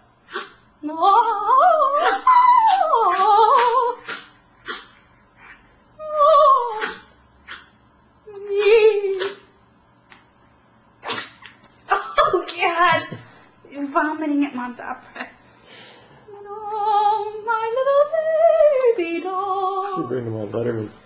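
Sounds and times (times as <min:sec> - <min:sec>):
woman singing operatically: 0:00.8 - 0:04.0, 0:06.0 - 0:07.0, 0:08.3 - 0:09.5, 0:16.3 - 0:20.0
small dog howling: 0:01.2 - 0:04.2, 0:06.0 - 0:07.1.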